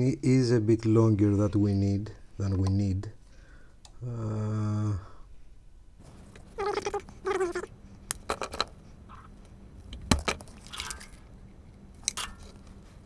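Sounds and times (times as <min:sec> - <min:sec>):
cat meowing: 0:06.6 - 0:07.7.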